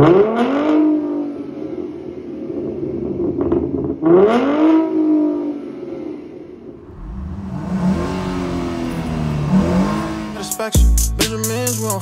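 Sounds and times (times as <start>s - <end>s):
car engine revving: 0.0s - 12.0s
car engine idling: 6.6s - 12.0s.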